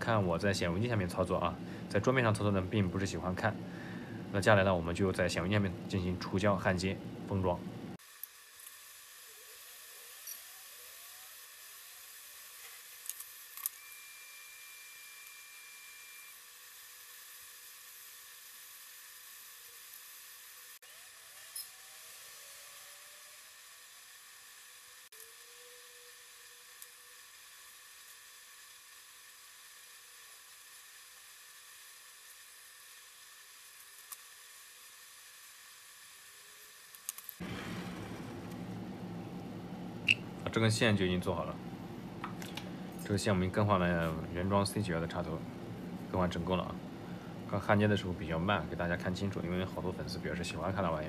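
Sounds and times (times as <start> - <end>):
thin high steady tone: 9.0 - 12.5, 19.3 - 28.2.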